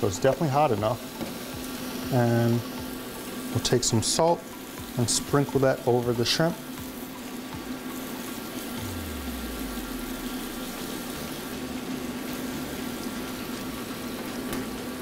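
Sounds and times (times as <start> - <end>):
shrimp sizzling in hot oil: 0.0 - 15.0
low hum: 8.8 - 11.8.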